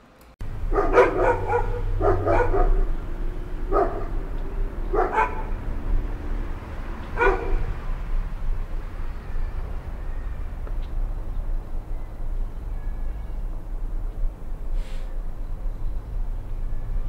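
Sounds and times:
low city hum: 0:00.0 - 0:17.0
dog barking: 0:00.6 - 0:03.0, 0:03.6 - 0:05.7, 0:07.0 - 0:07.8.

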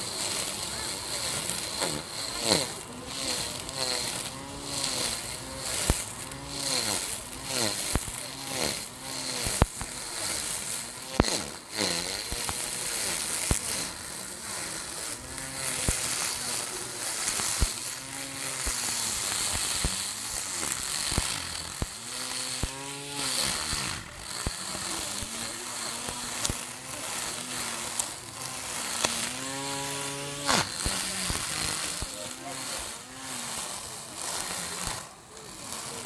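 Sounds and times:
electric grass trimmer whining: 0:00.0 - 0:36.0
sharp ticks: 0:00.2 - 0:29.3.

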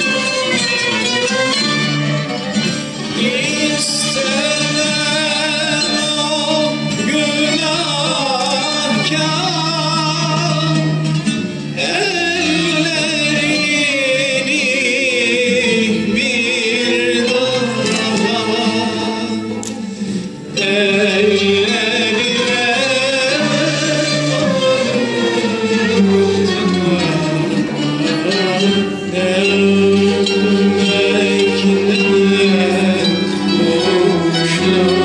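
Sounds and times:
ensemble of strings playing: 0:00.0 - 0:35.0
man singing with vibrato: 0:00.0 - 0:35.0.

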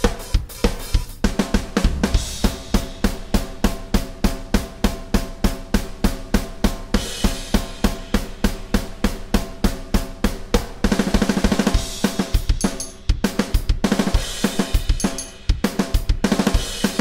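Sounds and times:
crash cymbal: 0:00.0 - 0:05.3
electronic drum beat: 0:00.0 - 0:17.0.

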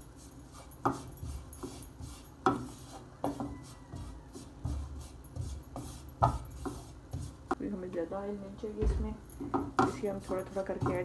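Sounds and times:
spatula scraping frying pan: 0:09.5 - 0:11.0.

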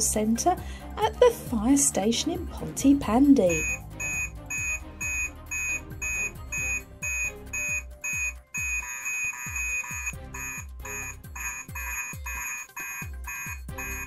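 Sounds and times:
electronic music with steady beat: 0:03.4 - 0:14.0.

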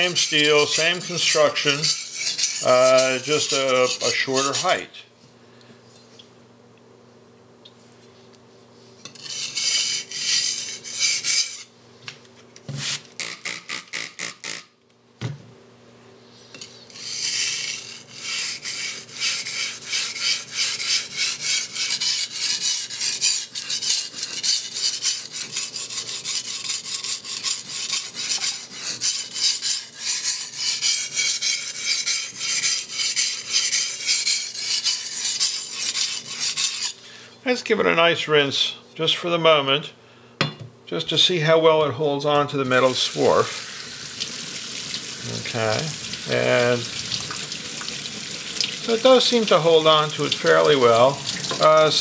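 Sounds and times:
blade scraping on whetstone: 0:00.0 - 0:04.8, 0:09.0 - 0:11.7, 0:16.5 - 0:37.0.

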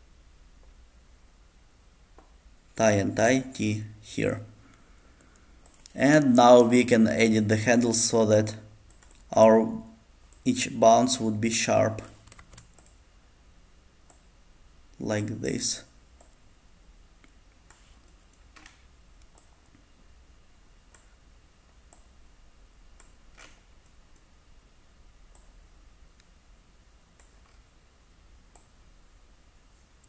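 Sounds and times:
room hiss: 0:00.0 - 0:30.0
computer mouse clicks: 0:05.2 - 0:06.0, 0:08.8 - 0:09.3, 0:12.0 - 0:13.0, 0:14.0 - 0:14.3, 0:16.2 - 0:16.4, 0:17.2 - 0:19.8, 0:20.9 - 0:21.2, 0:21.8 - 0:22.2, 0:23.0 - 0:24.3, 0:25.3 - 0:25.6, 0:27.1 - 0:27.7, 0:28.5 - 0:28.8.

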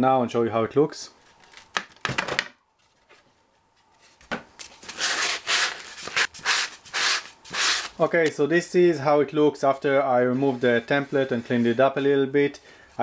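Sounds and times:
rubbing strokes on wood: 0:04.9 - 0:08.0.

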